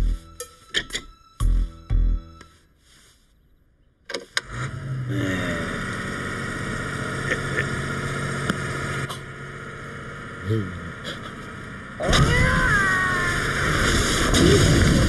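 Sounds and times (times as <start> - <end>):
compressor engine starting and running: 4.2 - 15.0.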